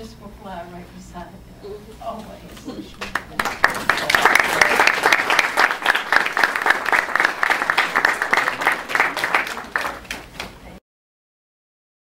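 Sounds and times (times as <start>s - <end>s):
audience applauding: 3.0s - 10.6s.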